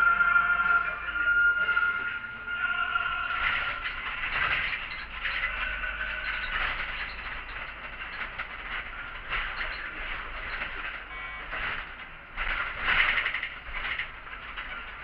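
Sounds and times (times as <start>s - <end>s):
bus engine running: 0.0s - 15.0s
bodywork rattles and clicks: 3.2s - 15.0s.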